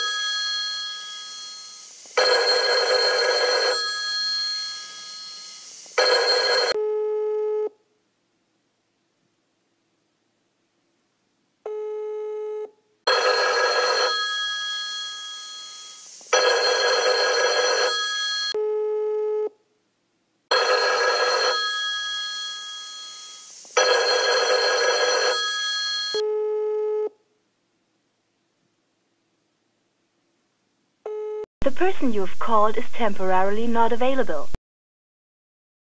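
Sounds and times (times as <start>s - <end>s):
telephone bell ringing: 0.0s - 6.8s, 13.1s - 18.6s, 20.5s - 26.3s
telephone ringback tone: 0.0s - 6.8s, 13.1s - 18.6s, 20.5s - 26.2s.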